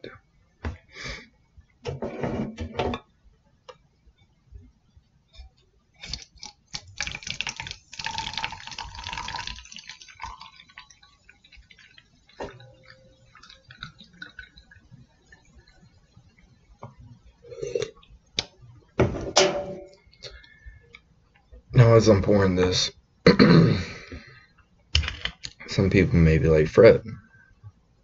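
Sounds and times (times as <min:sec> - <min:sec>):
drink pouring into a glass: 0:06.0 - 0:15.4
liquid fizzing: 0:06.0 - 0:15.4.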